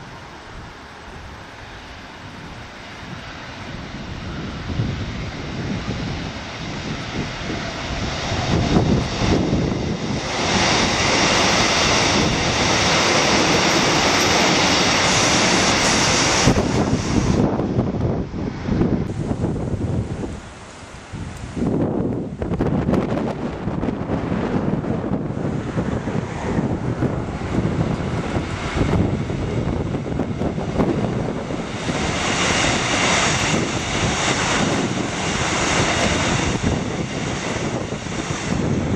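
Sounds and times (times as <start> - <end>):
electric train passing: 0.0 - 38.9.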